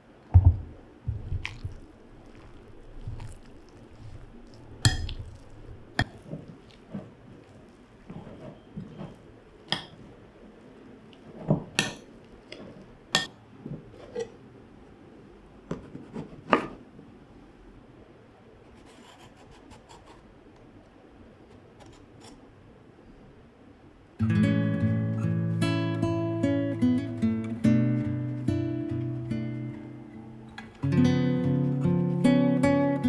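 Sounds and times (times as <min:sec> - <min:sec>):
knocks on wooden board: 0:00.4 - 0:01.2.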